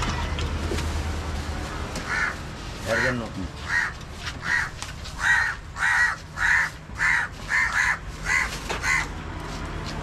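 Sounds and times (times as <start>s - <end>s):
crows cawing: 2.0s - 9.2s.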